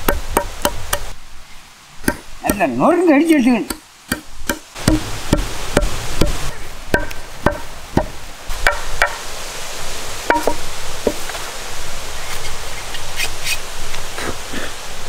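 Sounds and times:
pestle pounding in stone mortar: 0:00.0 - 0:01.1, 0:02.0 - 0:02.6, 0:03.7 - 0:09.2, 0:10.3 - 0:11.2.

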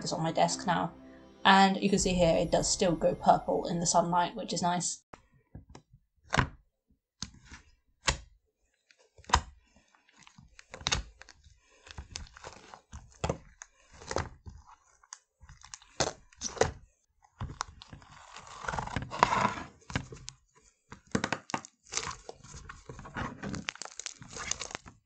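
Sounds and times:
slime squelching and popping: 0:10.6 - 0:16.7, 0:21.0 - 0:25.0.

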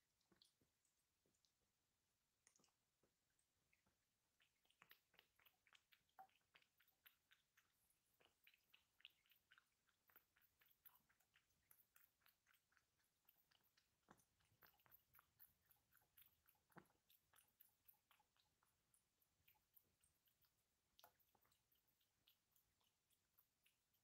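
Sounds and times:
cat chewing and licking: 0:02.3 - 0:24.0.

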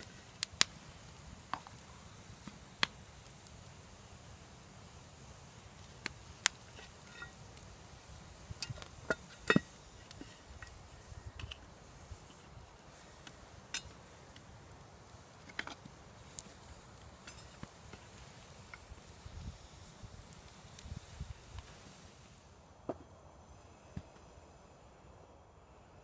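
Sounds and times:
campfire crackling: 0:00.0 - 0:26.0.

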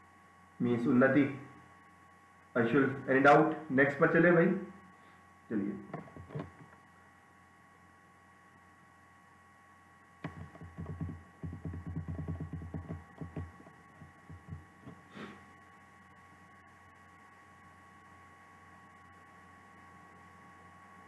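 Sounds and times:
electrical hum with whine: 0:00.0 - 0:21.0
muffled low rumbling and thudding: 0:10.2 - 0:15.0.

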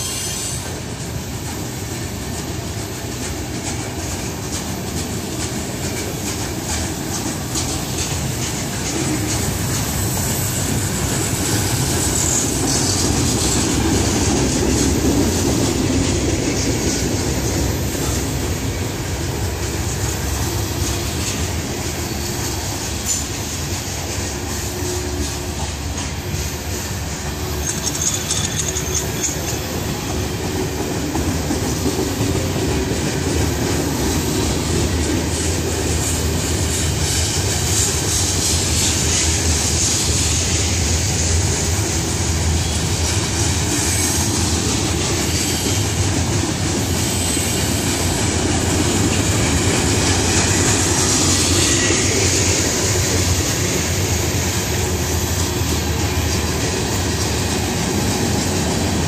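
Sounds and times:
high wheel squeals: 0:00.0 - 0:00.8, 0:27.4 - 0:30.2
train wheels rolling on rail: 0:00.0 - 0:59.0.

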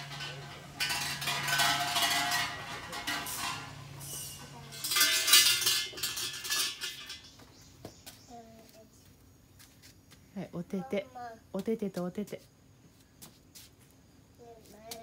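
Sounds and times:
shrine bell jangling: 0:00.0 - 0:07.4.

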